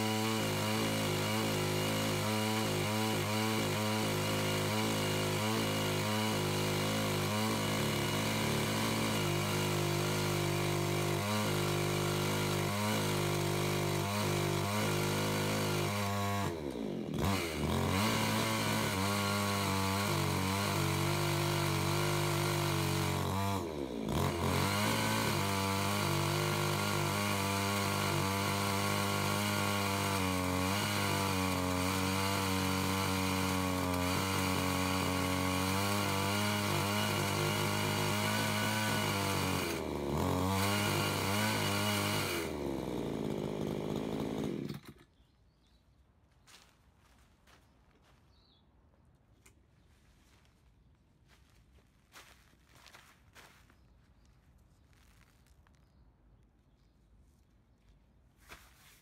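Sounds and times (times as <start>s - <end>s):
chainsaw cutting log: 0.0s - 45.3s.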